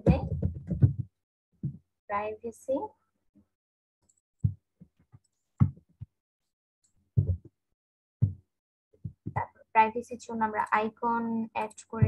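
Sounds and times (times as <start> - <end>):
short low thumps: 7.2 - 7.5, 8.2 - 8.4.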